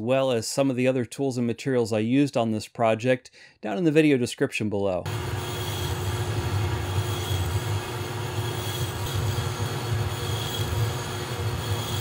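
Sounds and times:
metal lathe rumbling: 5.1 - 12.0.

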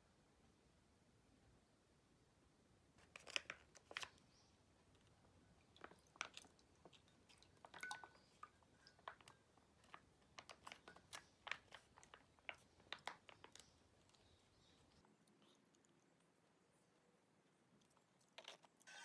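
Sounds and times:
plastic pouch crinkling: 3.0 - 5.1, 5.7 - 15.6.

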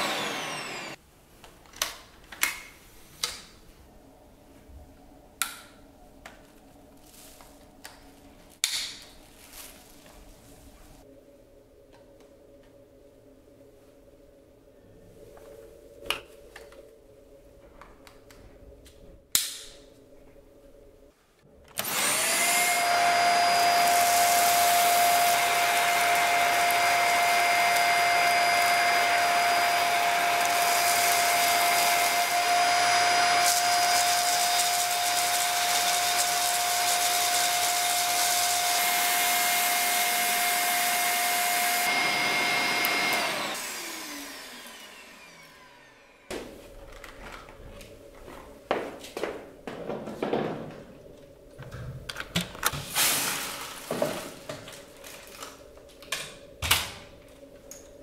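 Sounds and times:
vacuum cleaner motor whining: 0.0 - 1.0, 21.7 - 46.3.

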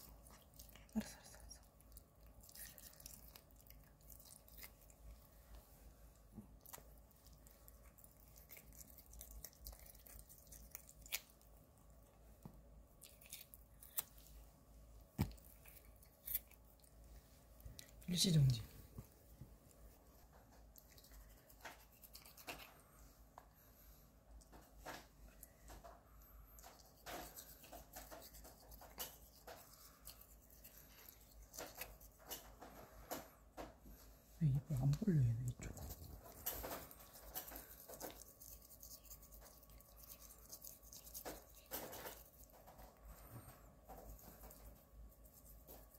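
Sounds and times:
toothbrush bristles scrubbing: 0.0 - 5.6, 19.8 - 22.8, 26.6 - 32.6, 35.6 - 43.0, 43.9 - 45.9.

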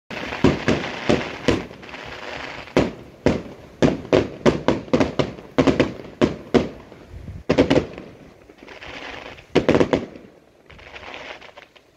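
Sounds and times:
crackling hiss: 0.1 - 11.9
firework shells bursting: 0.1 - 11.9.

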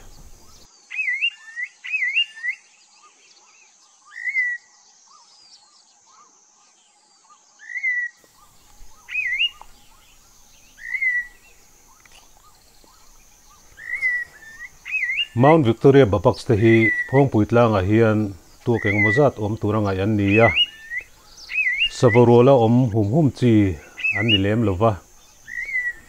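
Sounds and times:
bird whistled calls: 0.0 - 2.6, 4.1 - 5.2, 7.6 - 15.8, 16.6 - 22.5, 23.7 - 26.0
high insect trill: 8.2 - 26.0.

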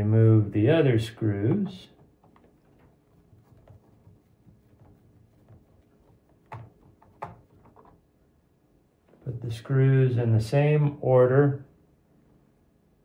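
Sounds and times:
screwdriver scratching and ticking: 2.0 - 8.0.

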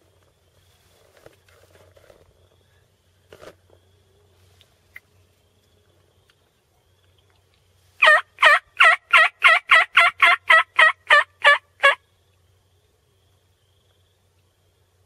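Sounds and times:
turkey yelping: 8.0 - 12.0.

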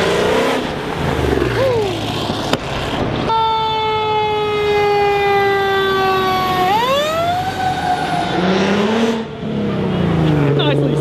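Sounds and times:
fire truck siren wailing: 3.3 - 9.3.

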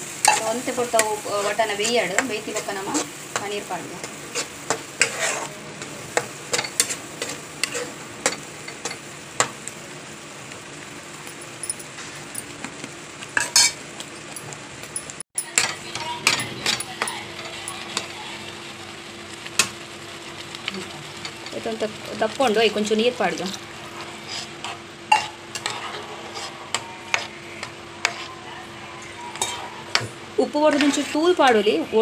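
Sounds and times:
light sizzle: 0.0 - 32.0
spatula scraping thick gravy: 4.2 - 5.6, 23.4 - 27.4, 28.0 - 28.4.

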